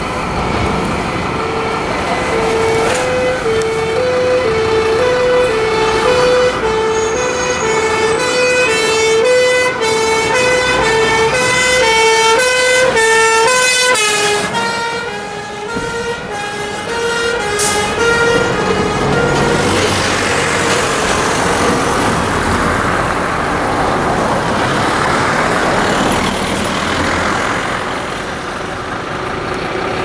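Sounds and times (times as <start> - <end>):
fire engine two-tone air horns: 1.4 - 21.8.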